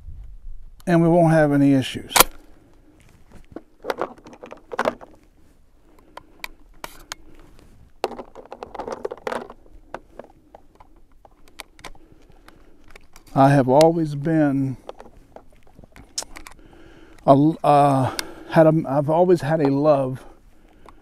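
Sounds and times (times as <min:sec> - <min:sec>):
gloved handling noise: 0:02.1 - 0:18.8
shotgun shells loading clicks: 0:02.2 - 0:02.5, 0:03.5 - 0:05.2, 0:08.0 - 0:18.5.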